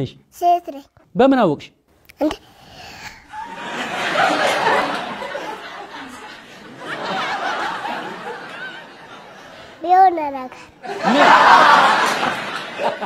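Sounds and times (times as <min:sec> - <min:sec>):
studio audience laughing: 0:03.3 - 0:09.8, 0:10.8 - 0:13.0.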